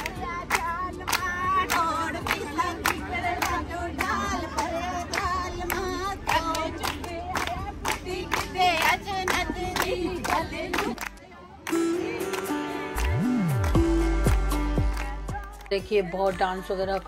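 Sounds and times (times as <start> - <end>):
women singing together: 0.0 - 13.1, 14.9 - 17.0
rhythmic clapping: 0.0 - 17.0
music with held notes: 11.6 - 17.0.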